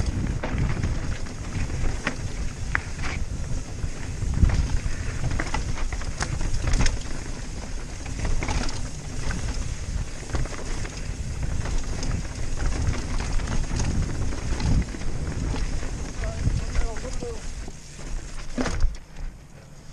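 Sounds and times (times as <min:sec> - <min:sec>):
bike clattering knocks: 0:00.0 - 0:03.2, 0:18.0 - 0:19.2
wind rumble on microphone: 0:00.0 - 0:19.0
bike tyres rolling over rocks: 0:00.0 - 0:19.9.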